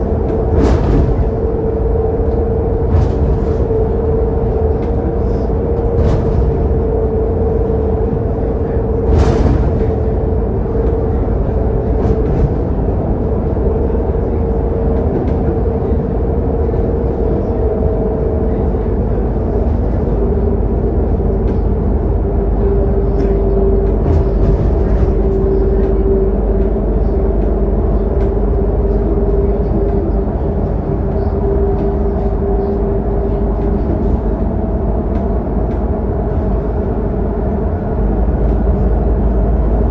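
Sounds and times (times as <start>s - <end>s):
bus engine and road rumble: 0.0s - 39.9s.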